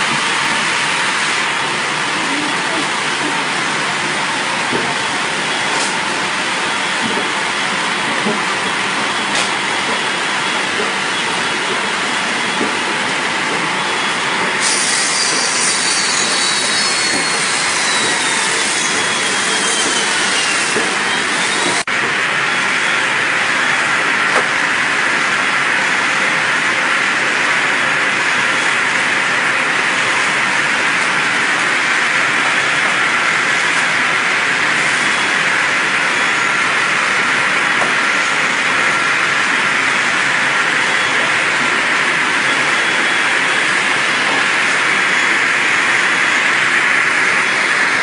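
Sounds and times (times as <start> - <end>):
steam dryer machine rushing: 0.0 - 48.0
machine hissing: 14.6 - 21.9.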